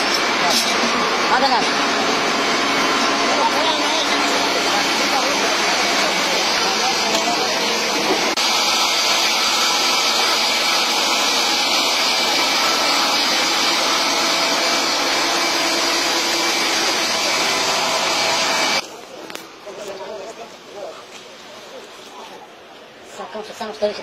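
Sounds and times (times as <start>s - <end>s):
heavy machinery whirring: 0.0s - 18.8s.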